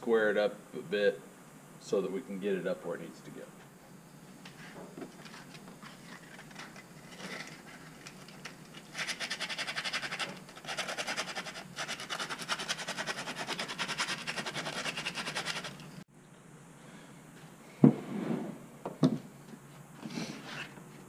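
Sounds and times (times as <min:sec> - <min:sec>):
sandpaper rubbing on plastic: 0:08.8 - 0:16.0.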